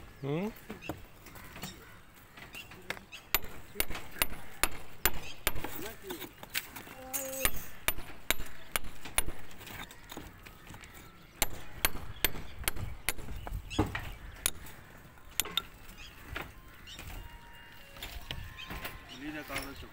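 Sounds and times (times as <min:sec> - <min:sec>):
hammer striking a chisel on brick: 0:03.3 - 0:05.9, 0:07.2 - 0:10.3, 0:11.4 - 0:14.7, 0:15.3 - 0:15.8.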